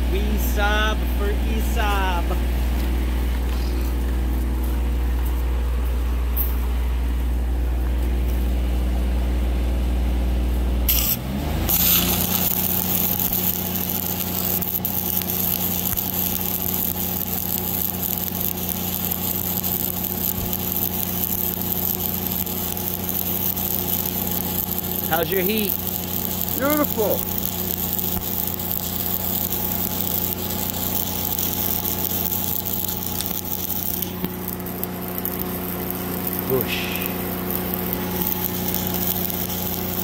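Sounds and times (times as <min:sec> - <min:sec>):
welding arc crackling hiss: 0:00.0 - 0:02.4, 0:10.9 - 0:40.0
welder engine running: 0:00.0 - 0:40.0.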